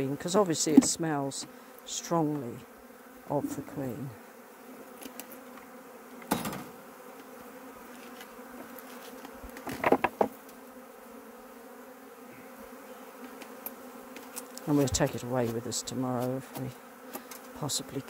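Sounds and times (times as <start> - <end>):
honeybees buzzing: 0.0 - 18.0
knocks on hive: 0.7 - 1.0, 9.7 - 10.4.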